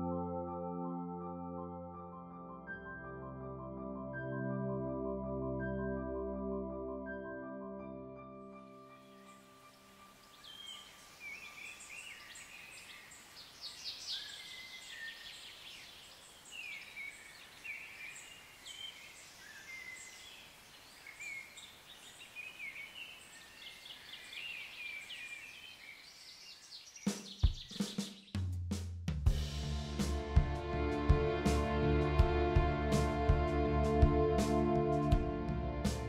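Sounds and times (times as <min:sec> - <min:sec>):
faint outdoor hiss: 0:08.7 - 0:28.1
small birds chirping and trilling: 0:08.8 - 0:28.4.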